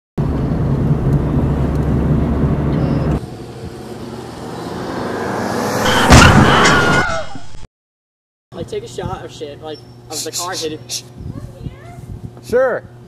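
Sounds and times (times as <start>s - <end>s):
car engine and road rumble: 0.2s - 7.2s
loud bang: 5.9s - 7.5s.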